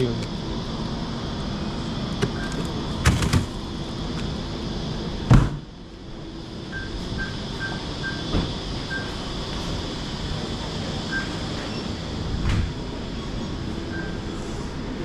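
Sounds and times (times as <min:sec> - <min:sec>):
door shutting with thump: 0:03.0 - 0:03.5, 0:05.3 - 0:05.7, 0:08.3 - 0:08.5, 0:12.4 - 0:12.8.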